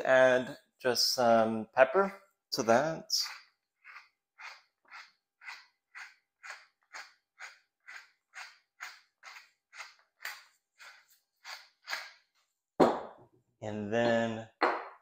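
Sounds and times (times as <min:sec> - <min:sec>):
pepper mill grinding: 0:03.2 - 0:12.2.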